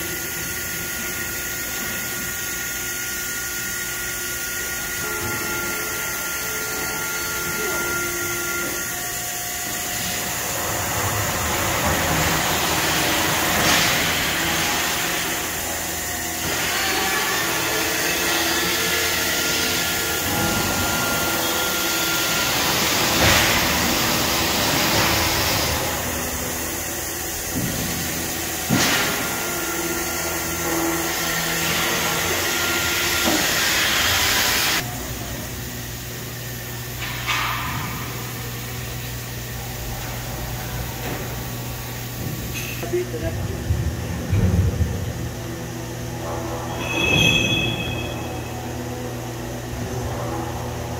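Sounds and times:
humming tones: 0:00.1 - 0:50.9
laser cutting machine hissing: 0:04.5 - 0:35.2.

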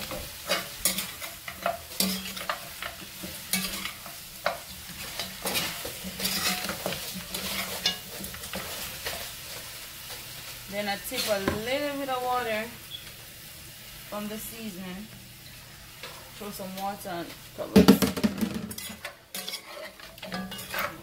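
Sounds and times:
meat sizzling: 0:00.0 - 0:21.0
metal spoon scraping a pot: 0:00.5 - 0:09.2, 0:18.7 - 0:21.0.

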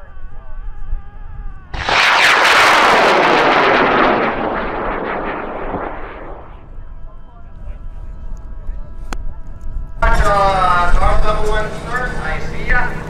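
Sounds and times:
rocket motor roaring: 0:01.8 - 0:06.7.

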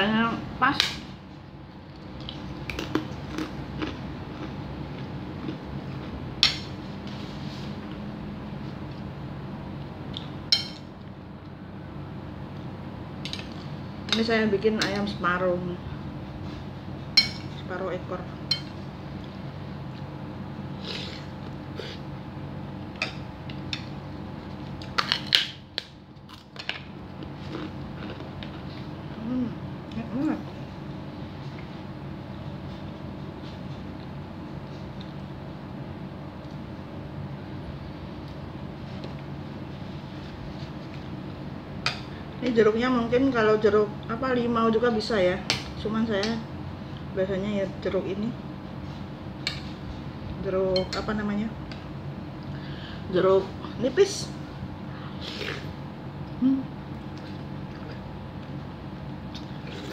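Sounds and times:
steady low hum: 0:00.0 - 0:59.9
person chewing: 0:01.8 - 0:06.2, 0:27.1 - 0:28.9, 0:55.0 - 0:55.7, 0:56.3 - 0:58.5, 0:59.3 - 0:59.9.

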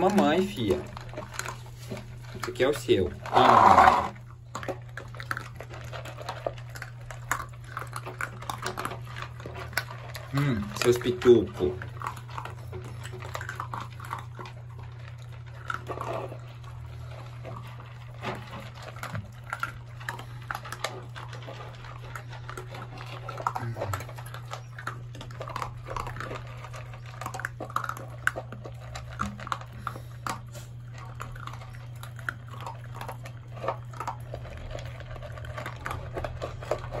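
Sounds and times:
puppies crunching kibble: 0:00.0 - 0:37.0
puppies whining and grunting: 0:11.8 - 0:37.0.

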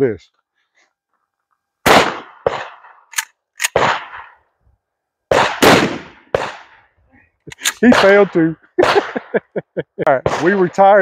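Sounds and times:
shotgun shots: 0:01.8 - 0:04.4, 0:05.3 - 0:06.8, 0:07.6 - 0:09.4, 0:10.2 - 0:11.0
shotgun pump clacking: 0:03.1 - 0:03.8, 0:07.5 - 0:07.8.

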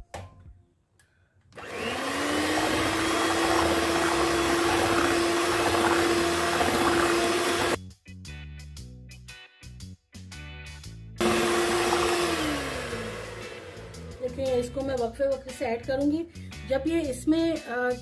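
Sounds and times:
electric hand mixer whining: 0:01.6 - 0:07.8, 0:11.2 - 0:14.2.

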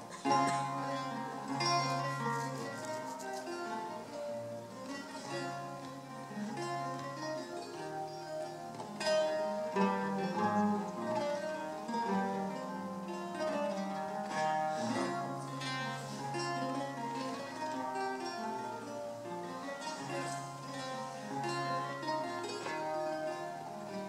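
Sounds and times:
lute played finger-style: 0:00.0 - 0:24.0.

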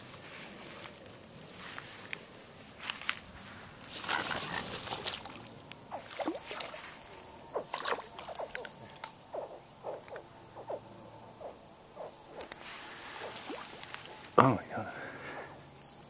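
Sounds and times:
bird wing flaps: 0:03.9 - 0:06.9, 0:07.5 - 0:14.4
juvenile alligator chirping calls: 0:05.9 - 0:14.4.

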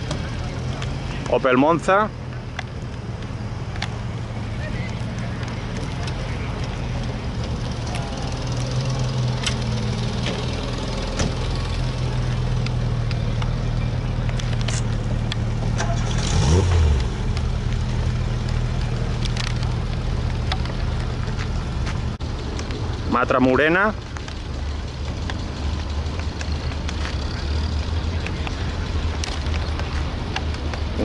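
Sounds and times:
engine rev: 0:03.4 - 0:31.0
car engine driving past: 0:15.0 - 0:20.0.

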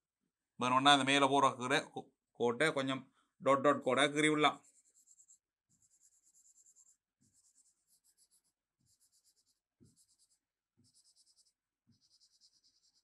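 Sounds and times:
pen scratching on paper: 0:04.5 - 0:13.0.

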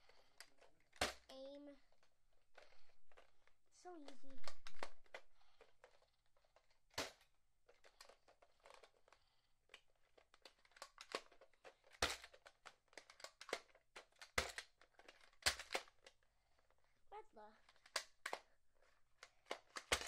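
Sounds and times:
toy blaster plastic clicks: 0:10.4 - 0:16.2, 0:19.2 - 0:20.0.

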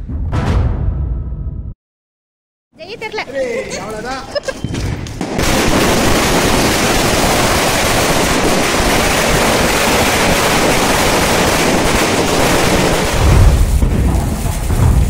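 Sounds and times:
low rumble: 0:00.0 - 0:01.8
firework fountain hissing: 0:02.9 - 0:15.0.

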